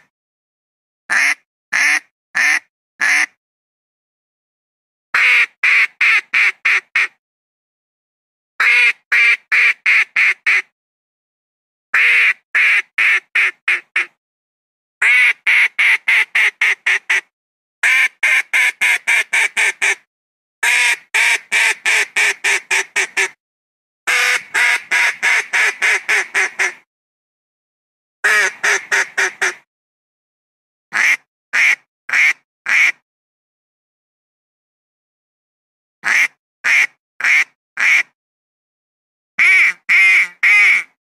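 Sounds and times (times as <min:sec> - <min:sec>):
duck quacking: 0:01.1 - 0:03.4, 0:05.2 - 0:07.1, 0:08.6 - 0:10.7, 0:12.0 - 0:14.1, 0:15.0 - 0:20.0, 0:20.6 - 0:23.4, 0:24.1 - 0:26.8, 0:28.2 - 0:29.6, 0:30.9 - 0:33.0, 0:36.0 - 0:38.1, 0:39.4 - 0:41.0.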